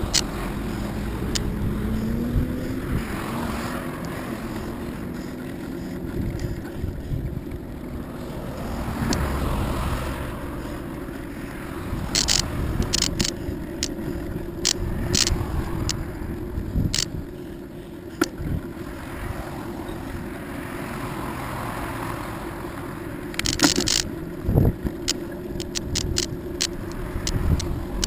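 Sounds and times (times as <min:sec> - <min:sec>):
sharp rattling clicks: 0:00.0 - 0:02.8, 0:12.0 - 0:16.1, 0:16.8 - 0:17.2, 0:23.3 - 0:24.2, 0:24.8 - 0:28.0
wind on microphone: 0:00.0 - 0:10.9, 0:11.7 - 0:17.4, 0:23.4 - 0:28.0
road traffic passing: 0:00.0 - 0:28.0.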